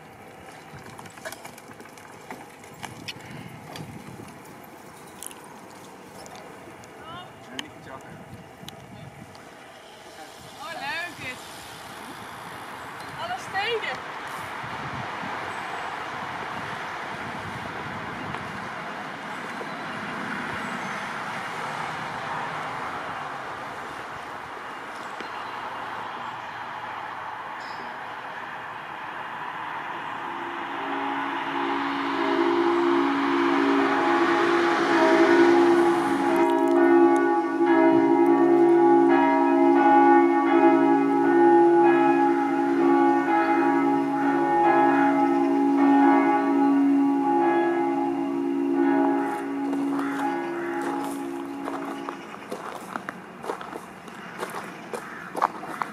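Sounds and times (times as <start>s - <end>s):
motorway traffic rushing: 0.0s - 55.9s
church bells ringing: 27.6s - 53.6s.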